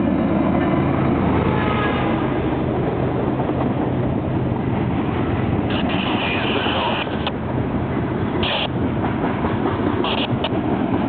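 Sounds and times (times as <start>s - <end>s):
diesel locomotive engine passing: 0.0s - 11.0s
train wheels clacking on rails: 8.0s - 11.0s.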